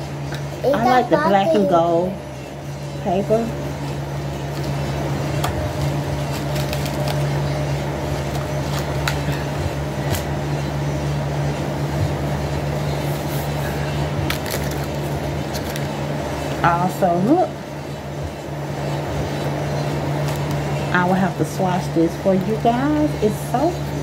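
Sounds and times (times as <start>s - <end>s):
low motor hum: 0.0s - 24.0s
paper crinkling and rustling: 6.2s - 9.5s, 13.2s - 16.0s.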